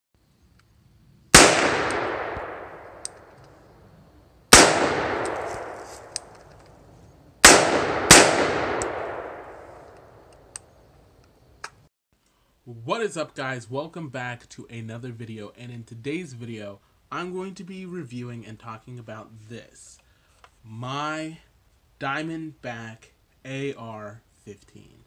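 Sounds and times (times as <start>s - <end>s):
rifle shots echoing: 1.3s - 3.4s, 4.5s - 6.4s, 7.4s - 10.3s.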